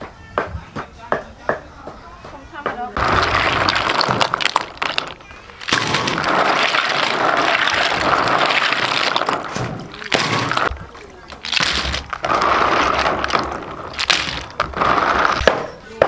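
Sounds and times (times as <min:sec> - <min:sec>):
water sloshing and splashing: 0:03.0 - 0:15.5
snail shells clattering: 0:03.0 - 0:15.8.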